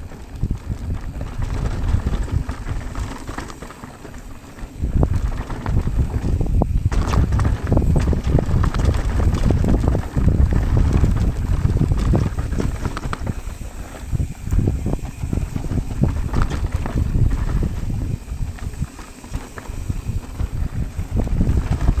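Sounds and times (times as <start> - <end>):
bike clattering over bumps: 0.0 - 22.0
tyres rumbling on dirt: 0.0 - 22.0
wind on microphone: 0.0 - 22.0.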